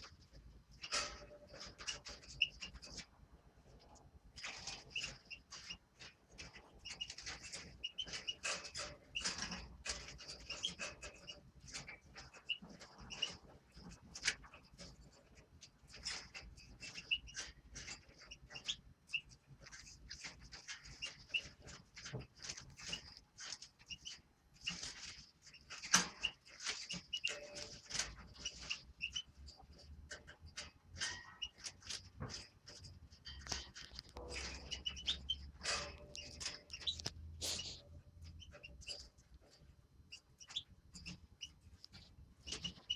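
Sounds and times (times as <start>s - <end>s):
quick clicks and rustles: 0.0s - 42.9s
finches chirping: 16.0s - 21.6s, 23.8s - 29.3s, 33.4s - 39.1s, 40.1s - 41.6s, 42.4s - 42.9s.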